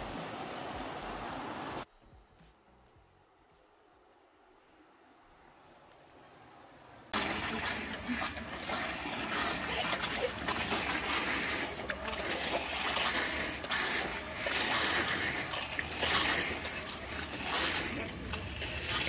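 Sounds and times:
water splashing into metal basins: 7.1 - 19.0.

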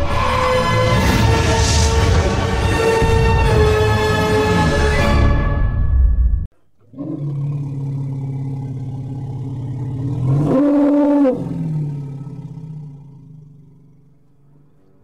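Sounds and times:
deep rough animal roar: 6.8 - 15.0.

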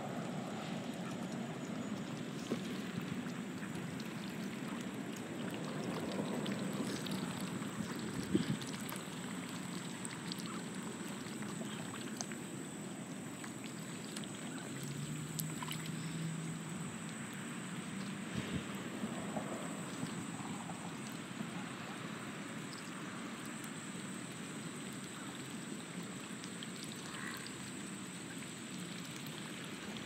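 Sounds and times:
ducks splashing in water: 2.5 - 16.3, 24.8 - 30.0.

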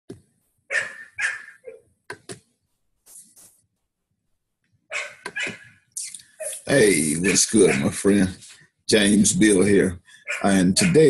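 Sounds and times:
dog barking: 0.7 - 1.8, 4.9 - 5.8, 6.4 - 8.1, 10.2 - 11.0.

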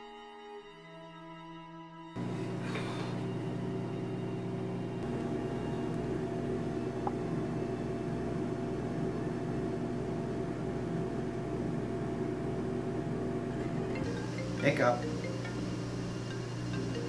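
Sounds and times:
dark droning horror music: 2.1 - 7.1.

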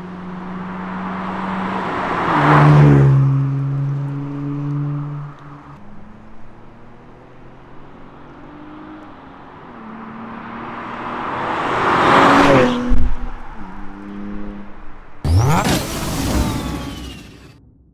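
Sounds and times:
car accelerating and passing: 0.0 - 17.9
whooshing sound effect: 15.3 - 17.7.

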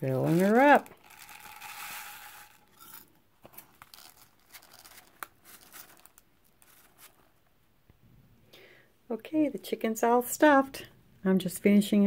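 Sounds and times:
paper and cloth crinkling: 0.0 - 1.8, 2.8 - 7.4
rice grains ticking: 0.2 - 2.8.

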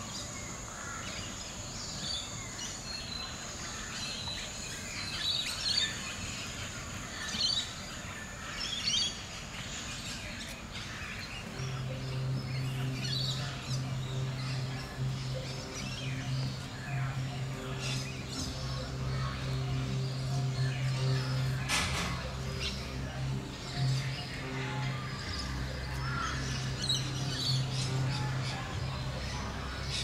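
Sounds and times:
birds chirping and twittering: 0.0 - 30.0
outdoor background noise: 0.0 - 30.0.

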